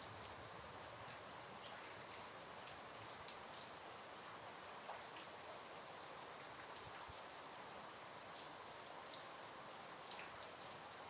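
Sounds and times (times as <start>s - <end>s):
faint steady rain: 0.0s - 11.0s
raindrops ticking close by: 0.0s - 11.0s.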